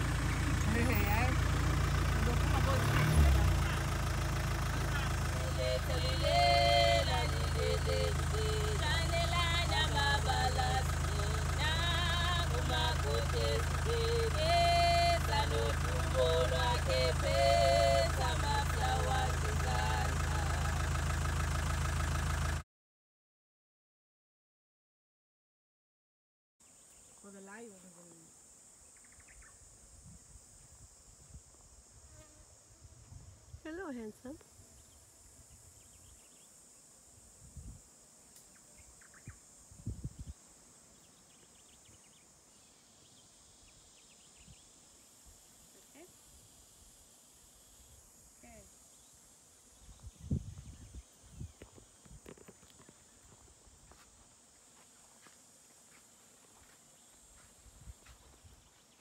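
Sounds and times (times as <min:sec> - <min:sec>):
high insect hiss: 0:00.0 - 0:21.4, 0:26.6 - 0:59.0
vehicle engine idling: 0:00.0 - 0:22.6, 0:50.0 - 0:58.6
women singing: 0:05.2 - 0:20.9.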